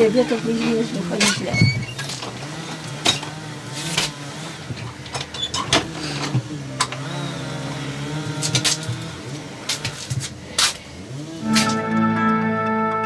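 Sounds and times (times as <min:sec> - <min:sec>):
motor humming: 0:00.0 - 0:12.2
sharp clicks and knocks: 0:01.1 - 0:07.2, 0:08.3 - 0:10.8.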